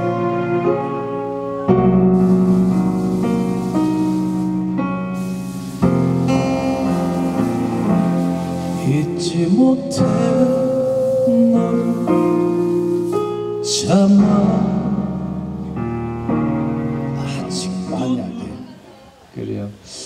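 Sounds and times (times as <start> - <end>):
keyboard backing track: 0.0 - 19.2
acoustic guitar: 1.6 - 18.8
man singing: 8.6 - 15.5, 17.2 - 18.8.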